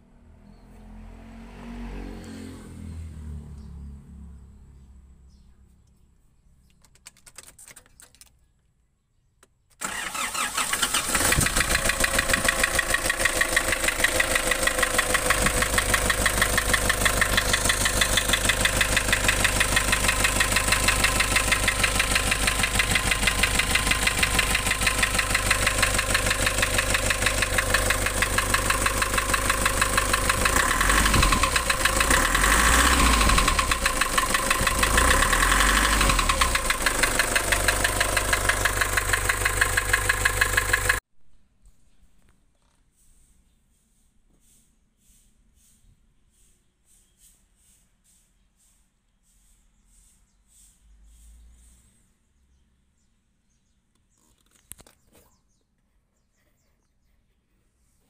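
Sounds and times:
diesel engine starting and idling: 9.8 - 41.0.

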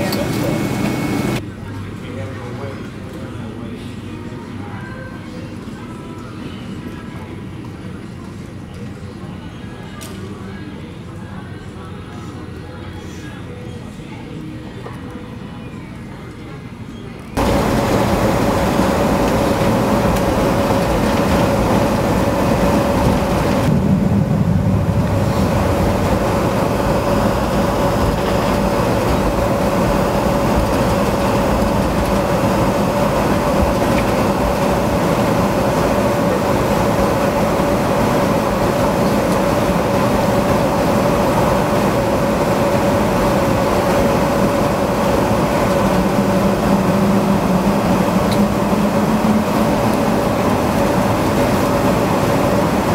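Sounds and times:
jet engines whining in cabin: 0.0 - 1.5, 17.2 - 52.9.

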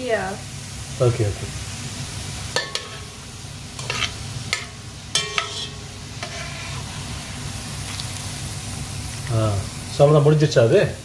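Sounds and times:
carrots deep-frying in oil: 0.0 - 11.0
metal utensil scraping pot: 3.8 - 7.2.

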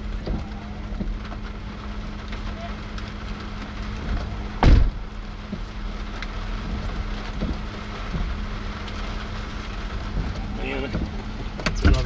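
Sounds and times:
wind rumbling on microphone: 0.0 - 12.0
loud short thump: 4.6 - 5.0.

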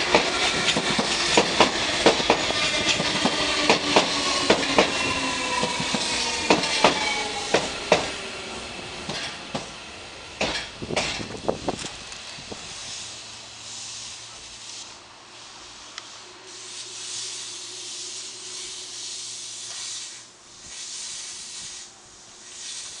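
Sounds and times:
train equipment humming: 0.0 - 23.0
compressed air hissing: 12.4 - 23.0.

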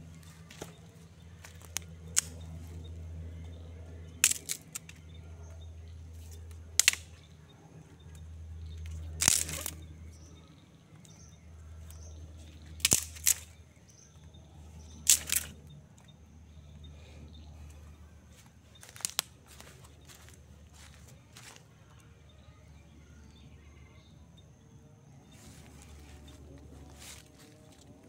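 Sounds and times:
dry sticks cracking: 0.2 - 16.2, 17.6 - 22.1.

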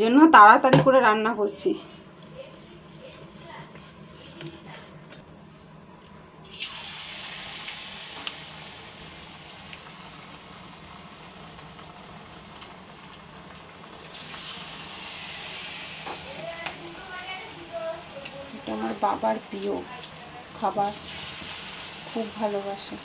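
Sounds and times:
oil popping: 6.4 - 22.1
batter slices sizzling in hot oil: 6.4 - 23.0.

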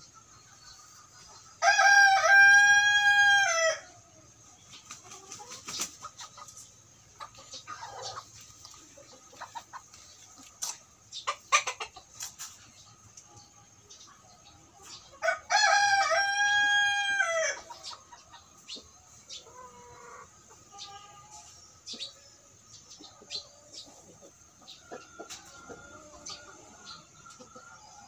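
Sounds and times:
rooster crowing: 1.6 - 3.8, 15.2 - 17.6.

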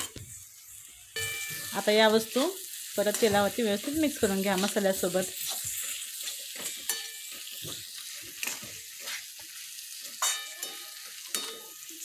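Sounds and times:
beans sizzling in oil: 0.0 - 12.0
metal spatula scraping pan: 5.4 - 9.4, 10.0 - 11.8.

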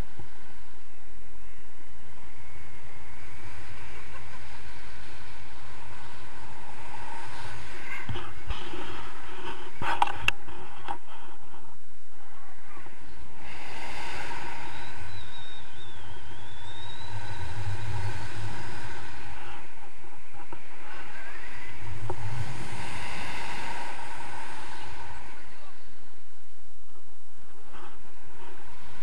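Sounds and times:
low rumble: 0.0 - 29.0
wind rushing over microphone: 0.0 - 29.0
faint wavering whistle: 12.3 - 19.8.

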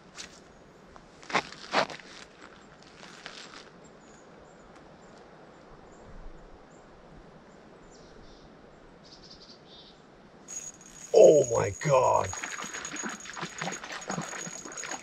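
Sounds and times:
rustle: 0.0 - 11.1.

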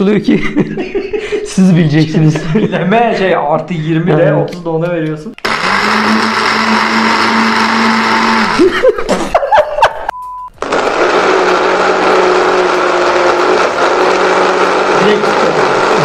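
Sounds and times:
blender motor running: 5.4 - 8.7, 10.6 - 16.0
short beep: 10.1 - 10.5.

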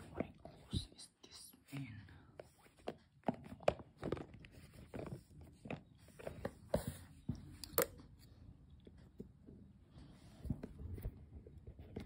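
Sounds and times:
crunchy handling noise: 2.4 - 9.5.

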